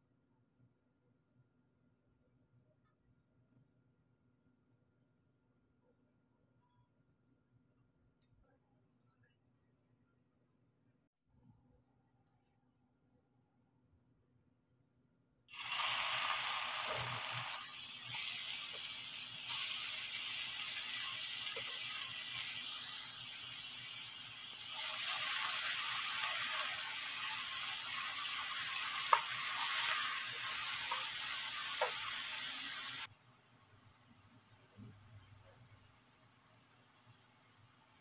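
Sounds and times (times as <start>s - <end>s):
onions sizzling in oil: 15.5s - 38.0s.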